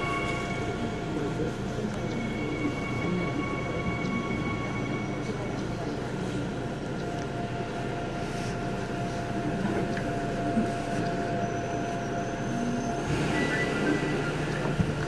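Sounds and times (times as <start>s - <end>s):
thin steady whine: 0.0s - 15.0s.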